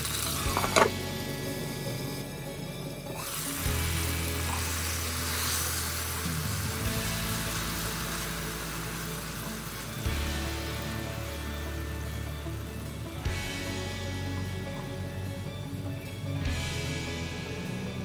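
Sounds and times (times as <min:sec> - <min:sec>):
sauce sizzling in a wok: 0:00.0 - 0:02.3, 0:03.2 - 0:14.0
background music with bass line: 0:00.0 - 0:18.0.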